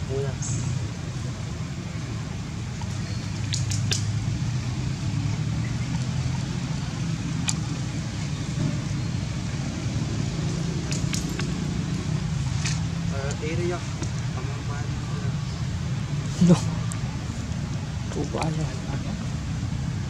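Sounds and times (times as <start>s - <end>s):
sharp ticks: 2.8s - 4.2s, 10.8s - 11.7s
low motor rumble: 4.0s - 20.0s.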